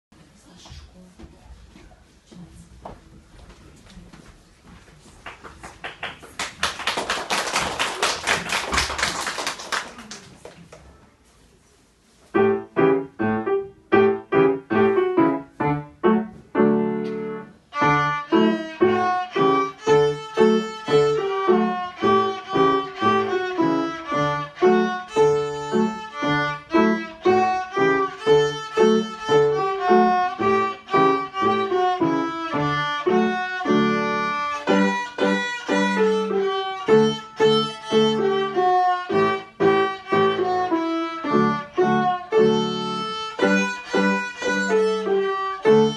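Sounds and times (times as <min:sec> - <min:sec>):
piano chords: 0:12.3 - 0:45.9
violin bowed notes: 0:17.1 - 0:45.9.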